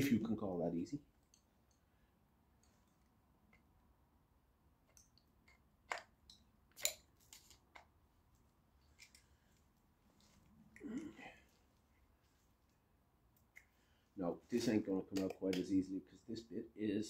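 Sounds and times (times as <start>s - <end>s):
metal tool clicking and scraping: 4.9s - 7.6s.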